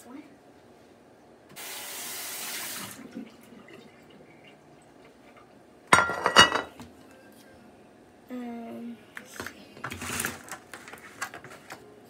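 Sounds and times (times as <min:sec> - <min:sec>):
glass dishes clinking: 0:05.9 - 0:06.8
faint handling sounds: 0:09.2 - 0:11.9.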